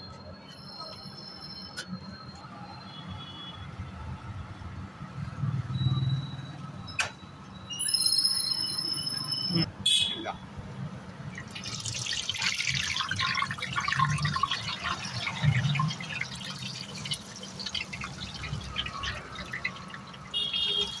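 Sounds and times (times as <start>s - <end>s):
oil sizzling and crackling: 11.2s - 21.0s.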